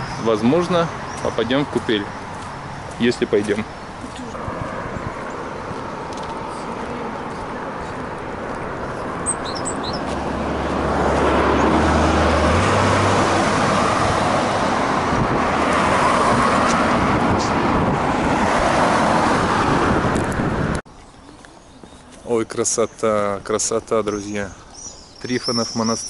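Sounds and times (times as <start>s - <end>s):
cars passing on asphalt: 0.0s - 26.0s
low engine hum: 3.4s - 20.8s.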